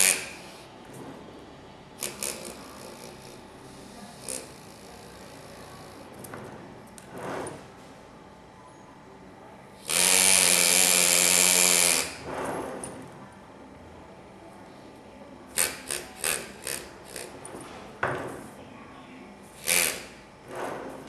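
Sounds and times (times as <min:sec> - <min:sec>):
pneumatic engraver buzzing on metal: 0:00.0 - 0:00.8, 0:02.0 - 0:06.2, 0:09.7 - 0:12.9, 0:15.5 - 0:17.6, 0:19.4 - 0:21.0.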